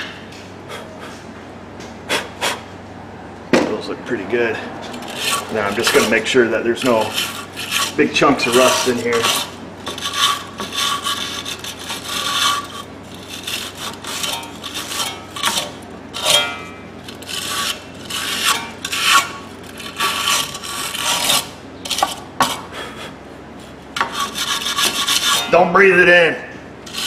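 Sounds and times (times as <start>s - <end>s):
wire brush scrubbing metal: 4.9s - 22.2s, 23.6s - 25.6s.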